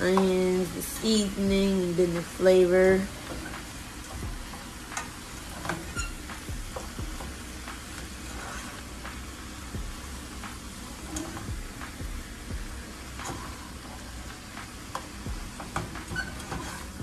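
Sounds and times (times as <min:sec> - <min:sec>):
food sizzling in a frying pan: 0:00.0 - 0:17.0
spatula scraping a pan: 0:04.4 - 0:07.4, 0:08.0 - 0:09.0, 0:15.6 - 0:17.0.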